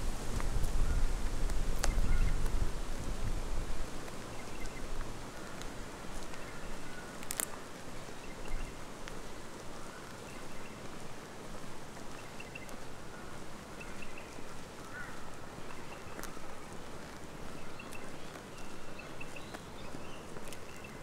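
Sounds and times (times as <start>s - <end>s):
footsteps on dirt track: 0.0s - 21.0s.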